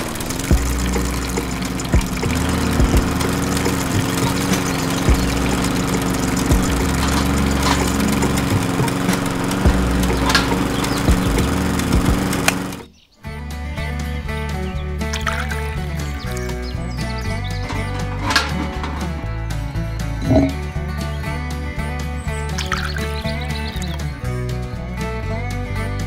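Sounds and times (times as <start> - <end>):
sharp clicks: 0.0 - 12.9, 22.5 - 24.1
small engine running: 0.0 - 12.9, 15.0 - 26.0.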